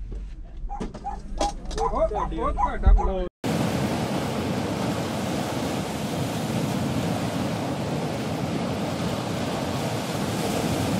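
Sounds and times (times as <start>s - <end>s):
ocean surf washing onto beach: 3.4s - 10.9s.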